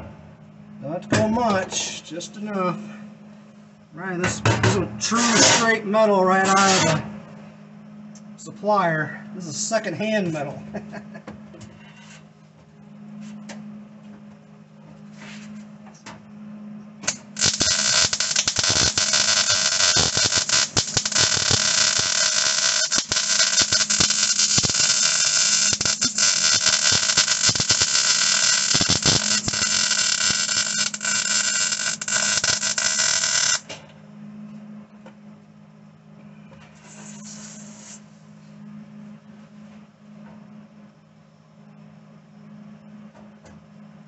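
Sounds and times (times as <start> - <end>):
low steady hum: 0.0 - 44.0
welder arc crackling: 5.1 - 7.0, 17.0 - 33.7, 36.8 - 38.0.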